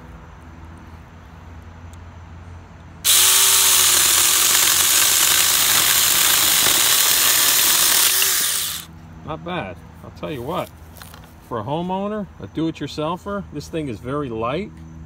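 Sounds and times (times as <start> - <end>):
electric chainsaw cutting branch: 3.0 - 8.9.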